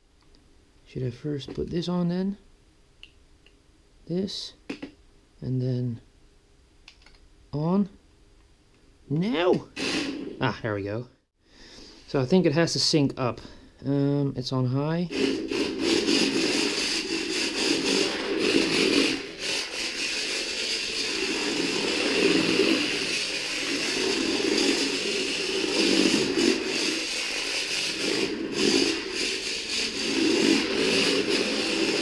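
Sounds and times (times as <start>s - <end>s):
toy car motor whirring: 15.1s - 32.0s.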